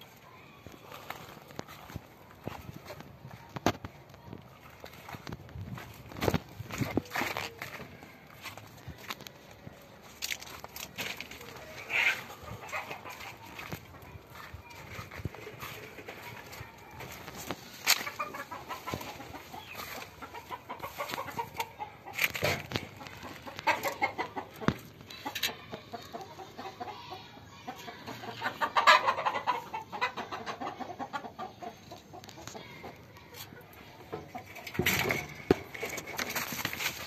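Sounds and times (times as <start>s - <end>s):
chickens clucking: 0.0s - 37.0s
rustling: 34.5s - 37.0s.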